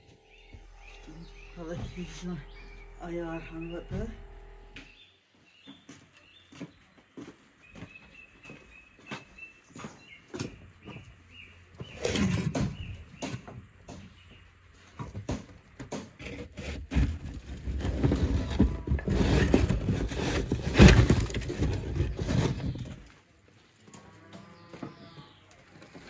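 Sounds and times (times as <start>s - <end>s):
knocks and crumbling: 15.0s - 23.1s.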